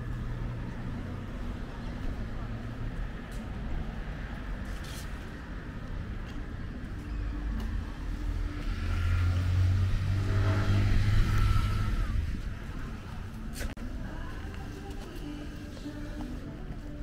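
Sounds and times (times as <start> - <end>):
car passing by: 7.4 - 13.2.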